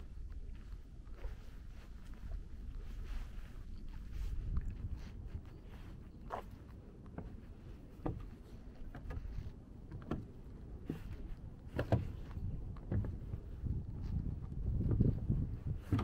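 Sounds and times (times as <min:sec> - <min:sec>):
footsteps on trail: 0:00.0 - 0:08.6
wind rumble on microphone: 0:00.0 - 0:16.0.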